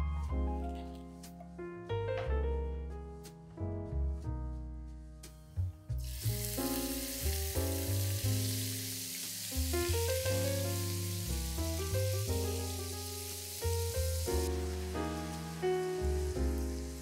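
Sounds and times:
background piano music: 0:00.0 - 0:17.0
onion sizzling in hot oil: 0:06.0 - 0:17.0.

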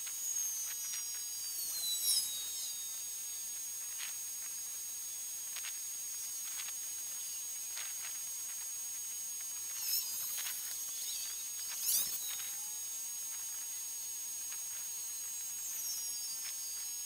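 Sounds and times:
steady high-pitched hiss: 0:00.0 - 0:17.0.

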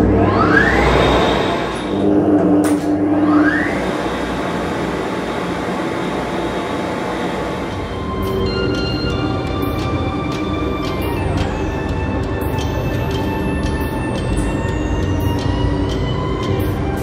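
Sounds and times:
short rising whine: 0:00.0 - 0:11.8
electric motor and pump whirring: 0:00.0 - 0:17.0.

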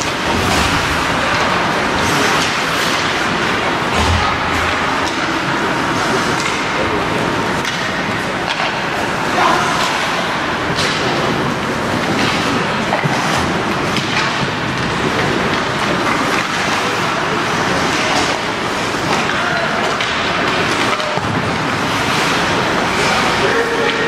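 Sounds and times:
indistinct voices: 0:16.2 - 0:24.0.

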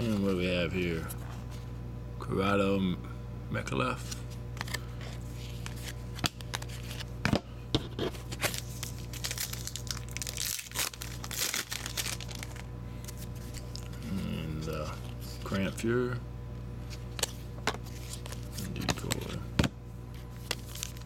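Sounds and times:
steady hum: 0:00.0 - 0:21.0
foil wrapper crinkling and tearing: 0:08.2 - 0:15.8, 0:16.9 - 0:19.4, 0:20.2 - 0:21.0.

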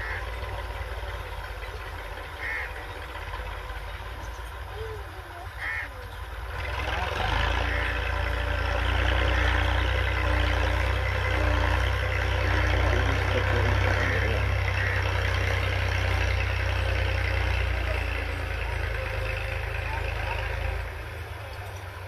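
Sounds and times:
tractor diesel engine droning: 0:00.0 - 0:22.0.

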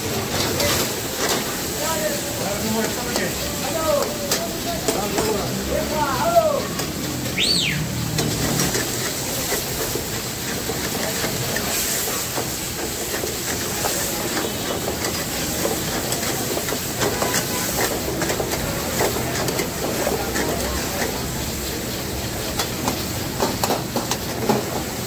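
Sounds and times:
food sizzling in a wok: 0:00.0 - 0:25.0
high chirp: 0:07.4 - 0:07.8
metal ladle scraping pan: 0:08.0 - 0:21.8.

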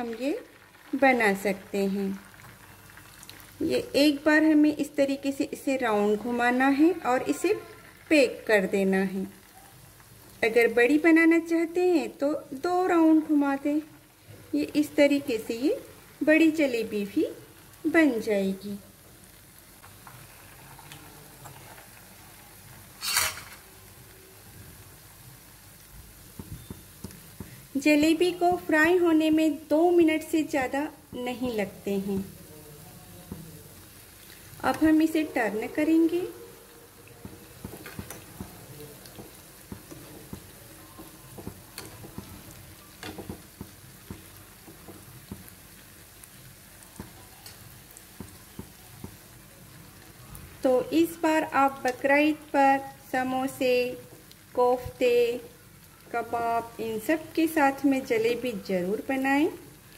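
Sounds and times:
batter sizzling in hot oil: 0:00.0 - 0:59.9
short loud hiss: 0:23.0 - 0:23.7.

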